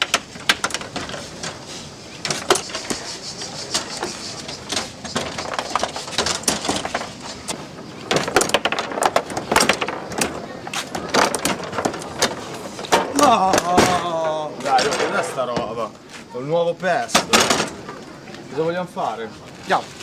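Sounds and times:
foosball ball and rods clacking: 0.0s - 1.6s, 2.2s - 15.7s.

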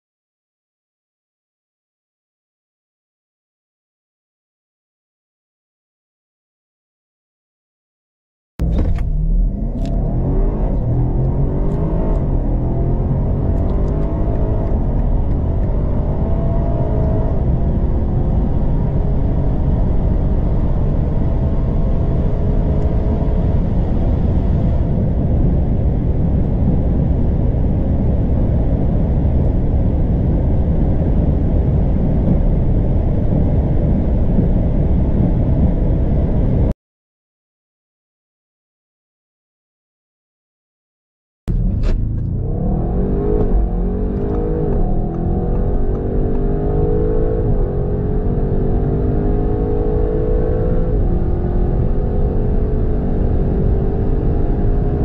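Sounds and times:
car engine accelerating hard: 8.6s - 36.7s, 41.5s - 55.0s.

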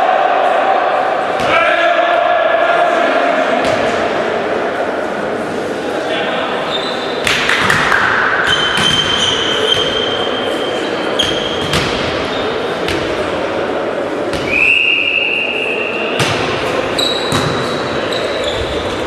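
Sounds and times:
volleyball bouncing on hall floor: 1.3s - 1.6s, 3.6s - 4.1s, 7.2s - 10.2s, 11.2s - 13.3s, 14.2s - 14.7s, 16.1s - 19.0s.

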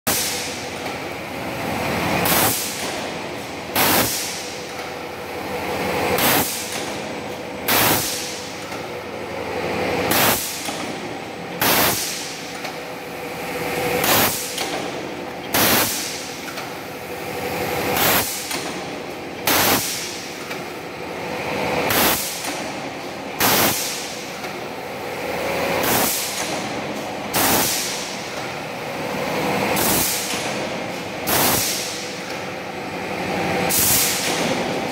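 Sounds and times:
machine running noise: 0.0s - 34.9s
power press metal strikes: 7.6s - 8.4s.

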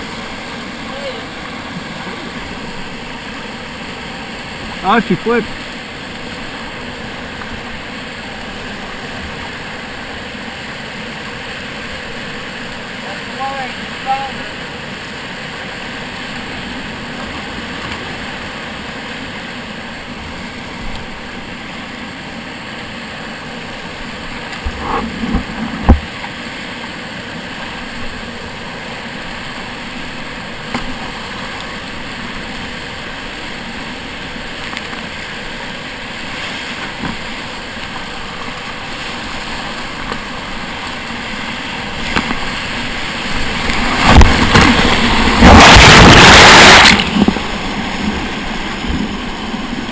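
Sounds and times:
whitewater rapids rushing: 0.0s - 49.9s
water splashing hard: 27.7s - 49.9s.

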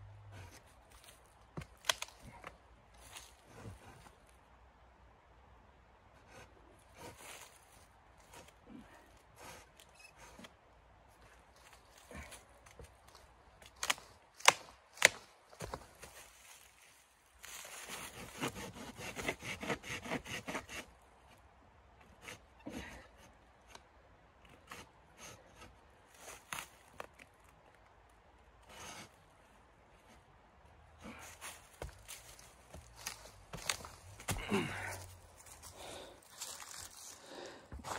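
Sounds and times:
wood cracking: 1.0s - 2.5s, 12.6s - 15.3s
dry leaves rustling underfoot: 14.9s - 17.9s, 31.2s - 37.5s
hand saw rasping: 17.9s - 20.9s.

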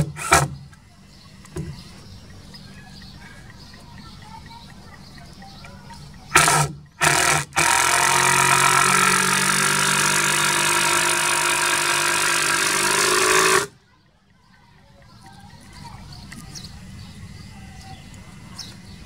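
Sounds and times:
cordless drill driving screw: 0.0s - 0.6s, 6.3s - 13.7s.

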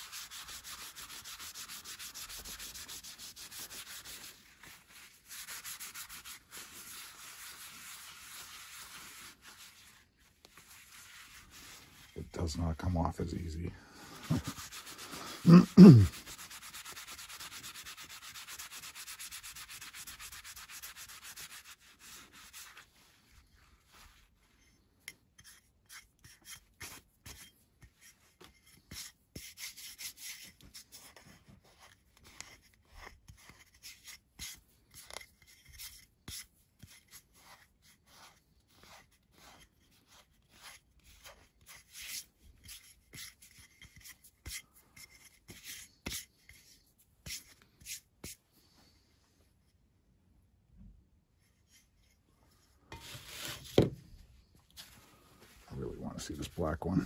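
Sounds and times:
cloth rubbing on tile: 0.0s - 12.2s, 14.1s - 24.6s, 52.9s - 53.9s.

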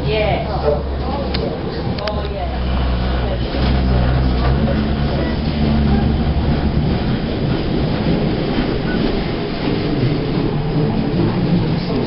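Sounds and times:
tram wheels rumbling on rail: 0.0s - 12.0s
low hum: 1.9s - 9.2s.

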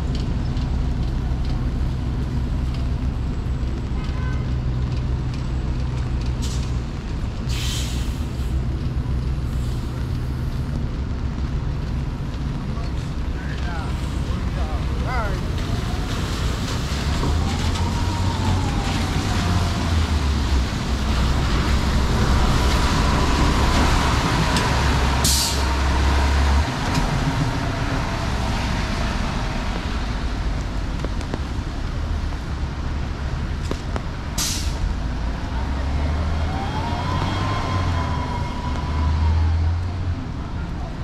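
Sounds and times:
engines rumbling: 0.0s - 41.0s
rain and tyres hissing: 0.0s - 41.0s
heavy vehicle whine: 5.0s - 41.0s
air brake hisses: 7.5s - 8.5s, 34.4s - 34.8s.

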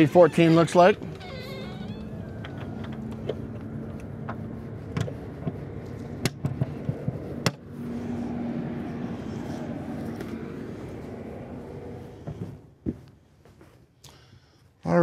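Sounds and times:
steady low hum: 0.8s - 13.1s
sharp clicks and knocks: 2.4s - 7.6s.

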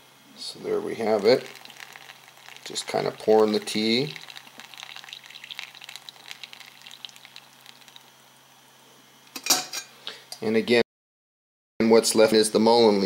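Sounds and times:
tea pouring into filter: 0.5s - 8.2s.

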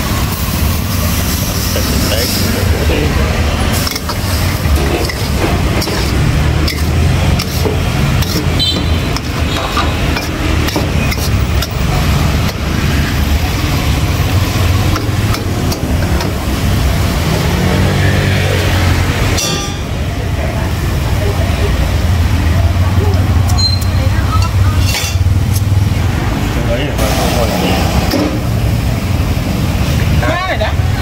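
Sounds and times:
food sizzling: 0.0s - 19.7s
burner roaring: 0.0s - 20.7s
metal spatula scraping wok: 1.1s - 11.8s, 19.3s - 19.9s, 23.6s - 25.7s.

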